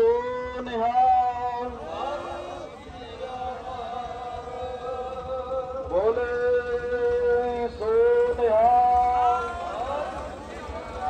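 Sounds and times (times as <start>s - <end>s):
voices chanting held notes: 1.7s - 5.8s, 8.1s - 11.0s.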